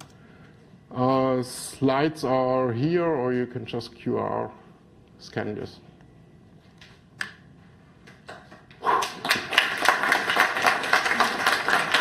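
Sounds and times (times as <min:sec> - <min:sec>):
audience applause: 0:08.9 - 0:12.0.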